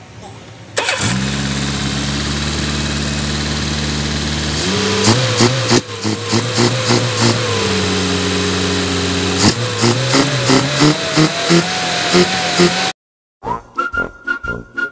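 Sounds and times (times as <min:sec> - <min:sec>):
car engine idling and revving: 0:00.8 - 0:13.0.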